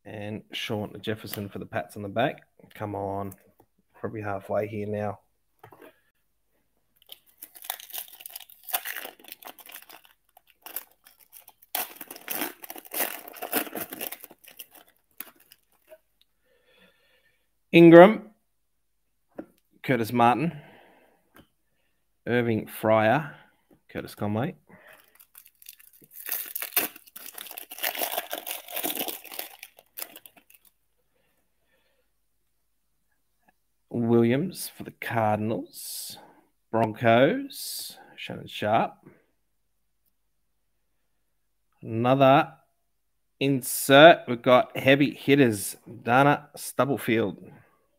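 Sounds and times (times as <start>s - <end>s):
foil wrapper crinkling and tearing: 7.0s - 16.0s, 25.0s - 30.8s.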